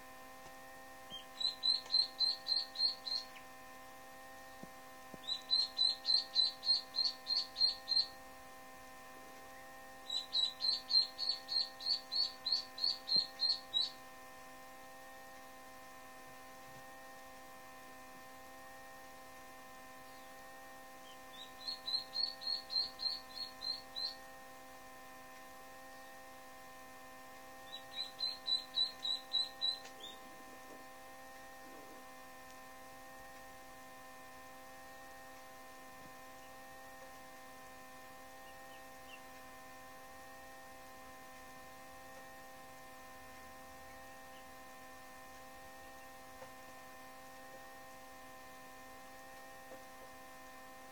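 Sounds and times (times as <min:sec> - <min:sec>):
electrical hum: 0:00.0 - 0:50.9
duckling peeping: 0:01.1 - 0:03.5, 0:05.1 - 0:08.2, 0:10.0 - 0:14.0, 0:21.0 - 0:24.3, 0:27.6 - 0:30.3, 0:38.4 - 0:39.3.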